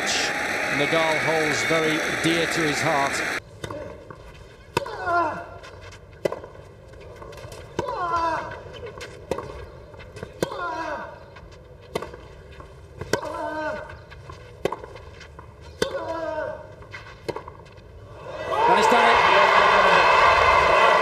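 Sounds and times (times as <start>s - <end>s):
tennis ball being struck: 13.0s - 13.5s.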